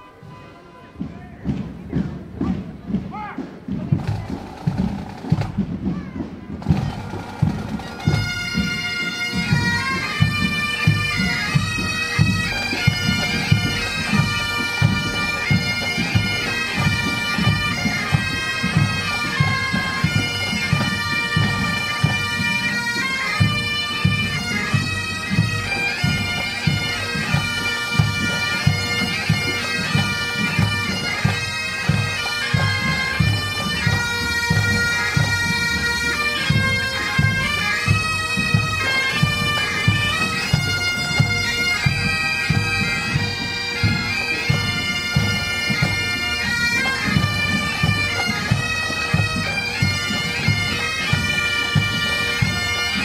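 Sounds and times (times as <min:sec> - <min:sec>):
snare and bass drums: 0:01.0 - 0:08.7
bagpipes playing a tune: 0:04.0 - 0:53.0.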